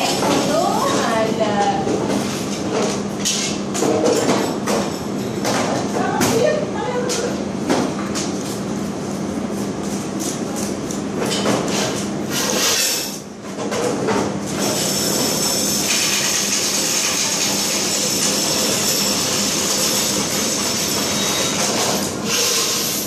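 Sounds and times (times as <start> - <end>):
banknote counting machine riffling: 14.9 - 21.6.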